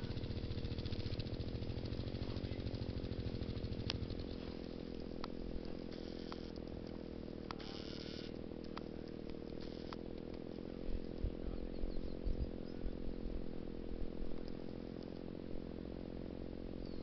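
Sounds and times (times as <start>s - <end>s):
sharp ticks: 0.0s - 11.3s
motorcycle engine at low revs: 0.0s - 17.0s.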